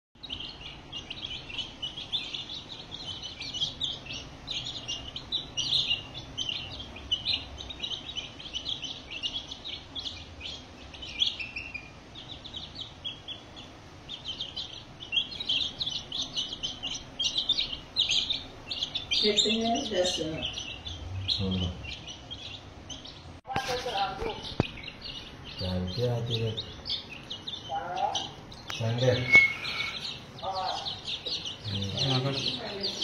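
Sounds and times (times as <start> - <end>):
chicks cheeping: 0.2 - 33.0.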